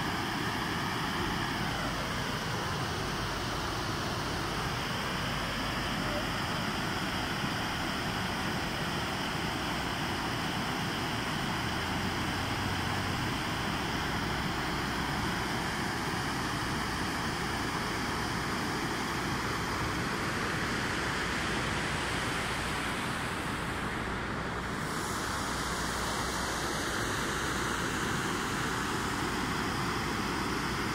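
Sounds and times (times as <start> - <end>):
fountain water splashing: 0.0 - 21.5.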